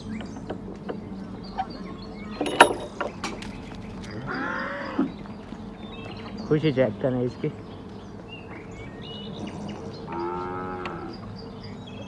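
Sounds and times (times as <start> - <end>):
cattle calling: 4.0 - 5.2, 10.0 - 11.3.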